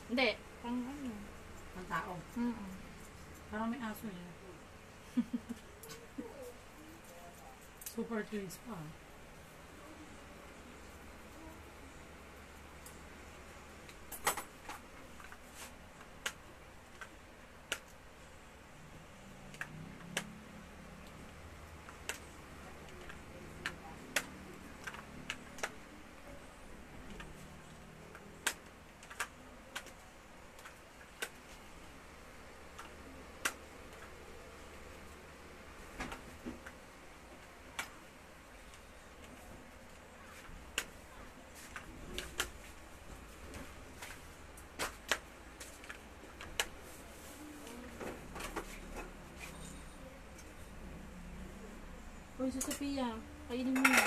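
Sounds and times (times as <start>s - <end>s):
low steady hum: 0.0s - 54.0s.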